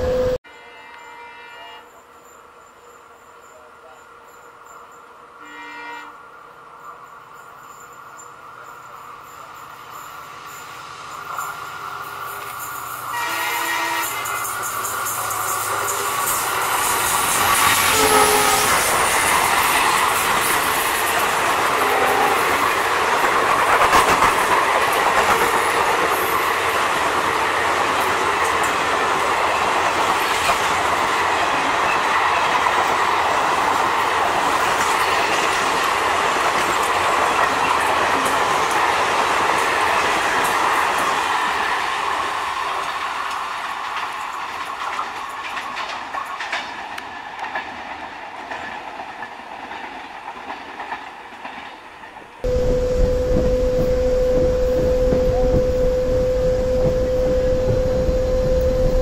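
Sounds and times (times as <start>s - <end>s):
train wheels clattering over joints: 14.0s - 52.2s.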